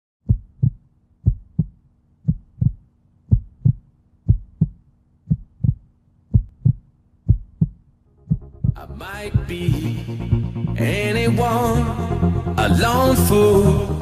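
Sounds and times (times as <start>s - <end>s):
heartbeat thumps: 0.2s - 9.8s.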